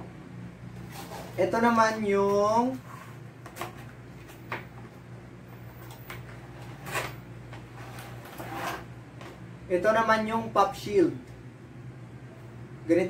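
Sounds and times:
steady low hum: 0:00.0 - 0:13.0
cardboard sliding rustle: 0:07.8 - 0:08.9.

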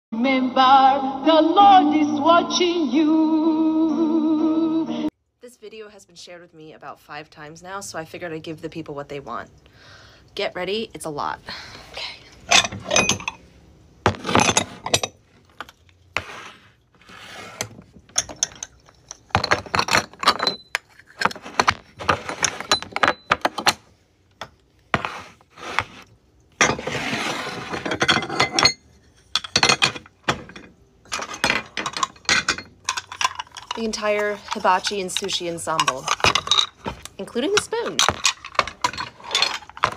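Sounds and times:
ceramic dishes clattering on wood: 0:12.5 - 0:13.4, 0:14.1 - 0:15.2, 0:18.1 - 0:23.8, 0:27.6 - 0:39.9.

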